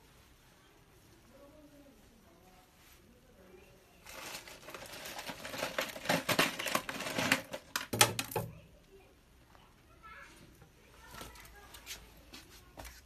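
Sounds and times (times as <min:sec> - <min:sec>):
hands rustling synthetic hair: 0:01.9 - 0:07.9.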